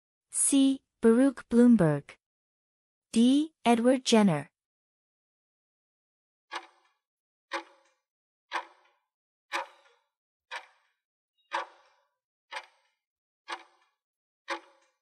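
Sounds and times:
clock ticking: 6.5 - 6.9, 7.5 - 7.9, 8.5 - 8.9, 9.5 - 10.9, 11.5 - 12.9, 13.5 - 13.9, 14.5 - 14.9.

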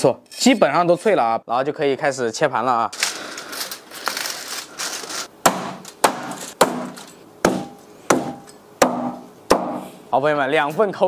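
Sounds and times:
cleaver chopping: 5.4 - 9.8.

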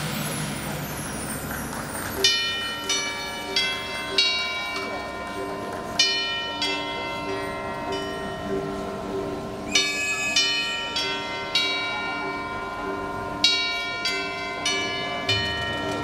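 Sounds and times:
tubular bells struck: 2.2 - 16.0.

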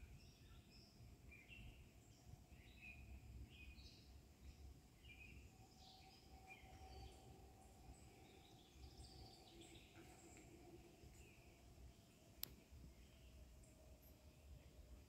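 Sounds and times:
faint steady hum: 0.0 - 15.0
birds chirping: 2.6 - 13.4.

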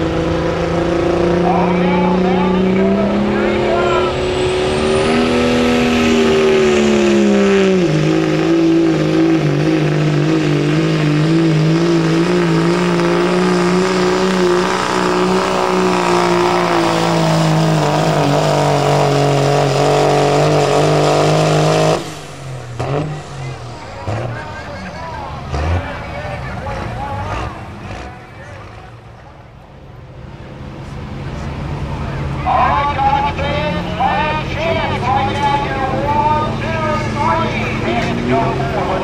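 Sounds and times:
diesel engine at full throttle: 0.0 - 39.0.

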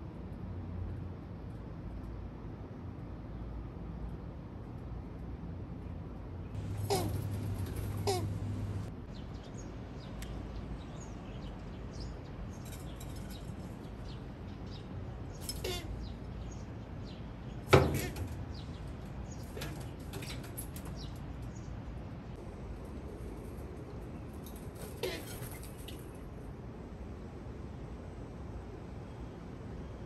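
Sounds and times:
small birds chirping: 6.5 - 22.4
doves honking: 6.6 - 8.9.

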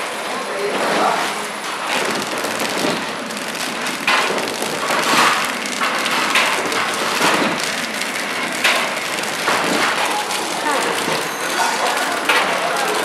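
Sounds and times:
bag packing machine clattering: 0.7 - 13.0.

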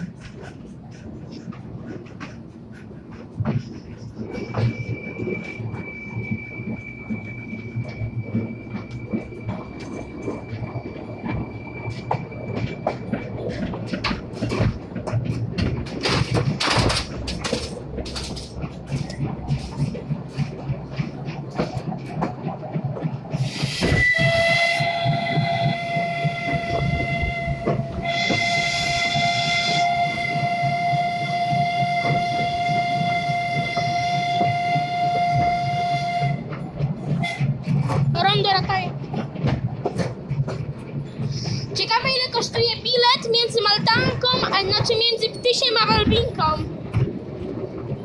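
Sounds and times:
train wheels clicking on rails: 0.0 - 48.0
steam locomotive whistle: 23.4 - 36.6, 37.2 - 37.5.

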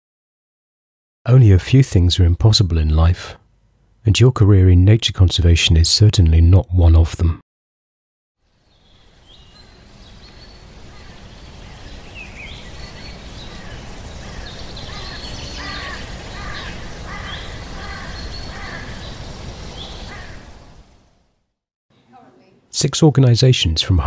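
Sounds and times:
outdoor hiss: 8.4 - 23.1
birds chirping: 8.6 - 20.9.

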